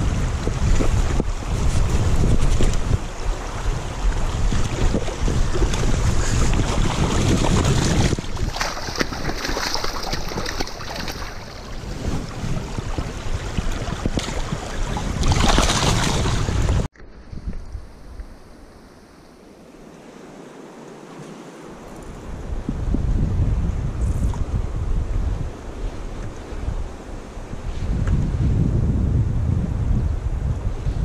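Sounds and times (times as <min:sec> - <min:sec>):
creek rushing over stones: 0:00.0 - 0:16.9
wind buffeting microphone: 0:00.0 - 0:18.7, 0:21.8 - 0:31.0.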